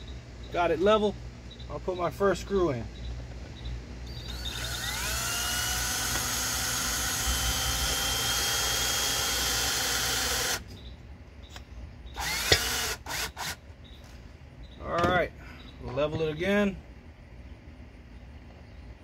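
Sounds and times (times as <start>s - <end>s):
cordless drill driving screw: 4.2s - 10.6s, 12.2s - 13.6s
drill clicks: 4.2s - 10.6s, 12.2s - 13.6s.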